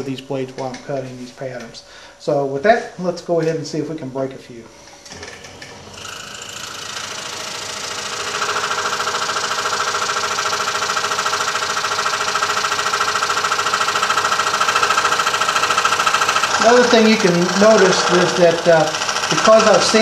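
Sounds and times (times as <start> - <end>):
scroll saw cutting metal: 5.9 - 20.0.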